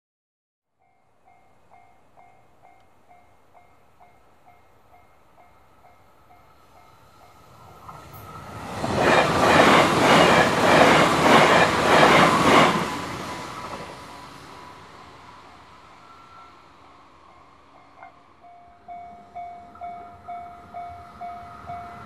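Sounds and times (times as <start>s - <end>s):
train wheels clattering over rails: 7.7s - 14.0s
level crossing warning bell: 17.4s - 22.0s.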